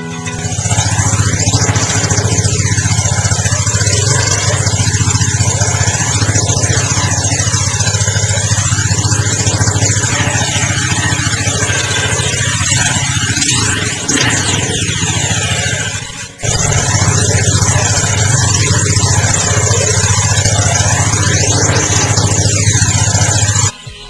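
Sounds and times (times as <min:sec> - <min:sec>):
motorcycle engine idling: 0:00.0 - 0:24.0.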